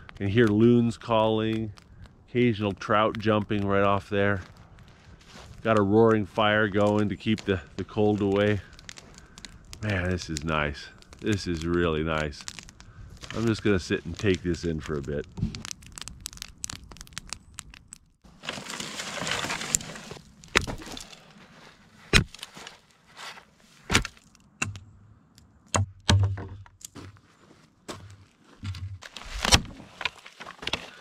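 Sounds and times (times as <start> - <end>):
wood snapping: 0.0 - 4.9, 5.6 - 21.2, 22.1 - 22.8, 23.9 - 27.0, 28.6 - 31.0
campfire crackling: 0.0 - 23.0
axe chopping dry wood: 22.1 - 22.5, 23.9 - 24.8.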